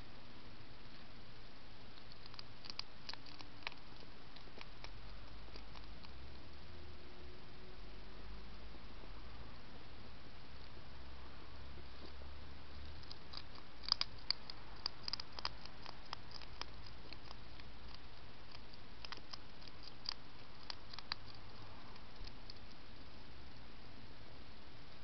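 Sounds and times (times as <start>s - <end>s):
steady hiss: 0.0s - 25.0s
hedgehog crunching food: 1.9s - 6.6s, 11.8s - 23.0s.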